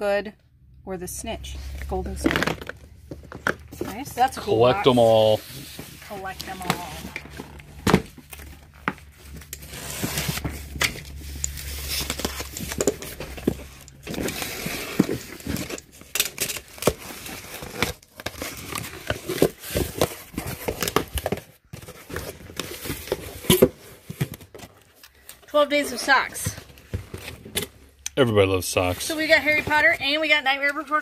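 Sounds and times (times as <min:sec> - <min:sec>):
cardboard flaps scraping and rustling: 0:03.1 - 0:25.0
packing tape tearing: 0:04.6 - 0:25.3.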